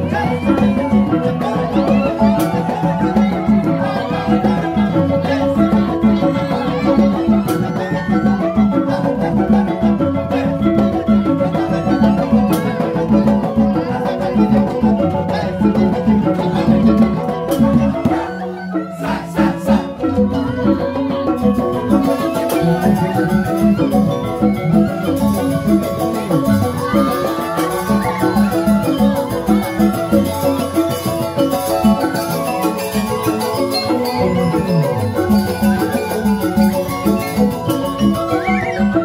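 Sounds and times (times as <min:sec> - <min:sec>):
gamelan ensemble playing: 0:00.0 - 0:39.0
ringing keyed percussion melody: 0:00.0 - 0:39.0
hand drums fast pulse: 0:19.5 - 0:39.0.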